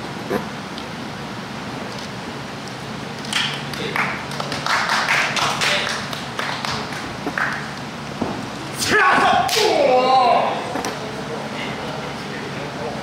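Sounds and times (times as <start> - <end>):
audience clapping: 3.2 - 7.7
person shouting: 8.8 - 10.6.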